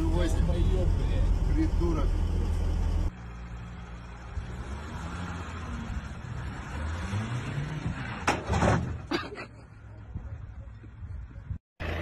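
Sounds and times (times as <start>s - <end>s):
truck engine revving: 0.0s - 8.3s.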